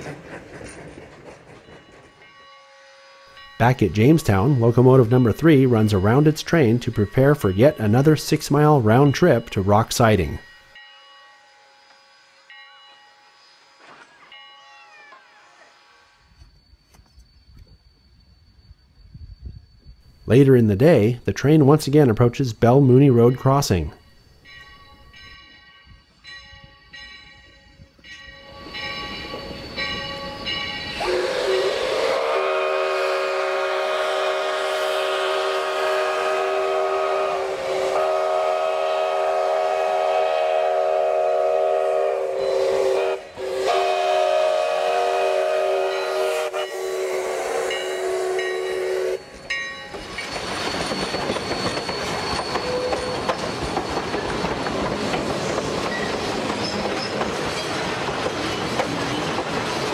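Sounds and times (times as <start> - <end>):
train wheels clattering on rails: 0.0 - 2.7, 47.7 - 59.9
steam locomotive chime whistle: 1.6 - 55.3
bell ringing: 23.1 - 31.0, 47.7 - 54.1
hissing steam: 28.4 - 59.9.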